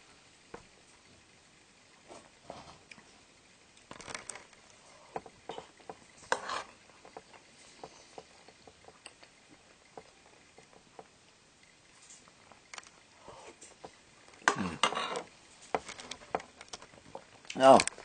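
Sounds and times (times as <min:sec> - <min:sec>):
person slurping: 0:14.4 - 0:15.3.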